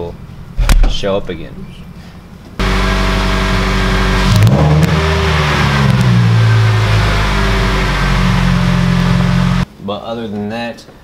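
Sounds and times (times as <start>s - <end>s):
car engine starting and running: 2.6s - 9.7s.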